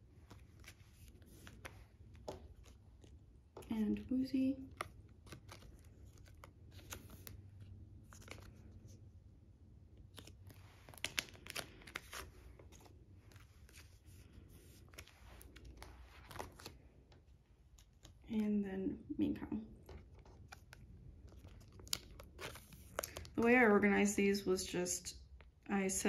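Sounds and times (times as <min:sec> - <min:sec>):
binder page turning: 0:00.0 - 0:03.2, 0:04.6 - 0:09.0, 0:10.0 - 0:18.2, 0:19.8 - 0:23.4
plastic sleeve crinkling: 0:04.6 - 0:09.0, 0:10.0 - 0:18.3, 0:19.8 - 0:23.4.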